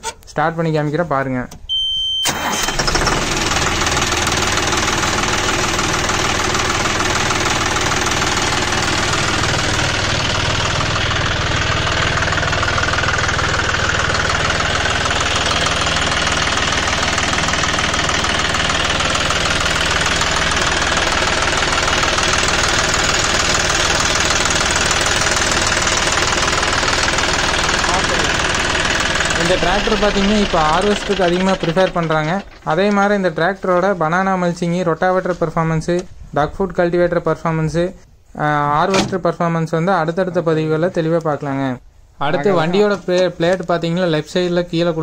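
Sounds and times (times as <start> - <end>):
diesel tractor engine idling: 2.3 - 34.0.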